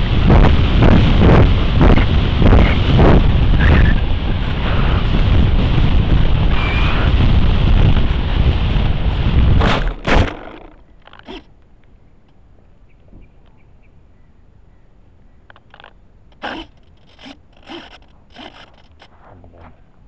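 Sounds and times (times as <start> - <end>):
steady air rush: 0.0 - 11.4
model plane knocking into ground: 9.6 - 11.4.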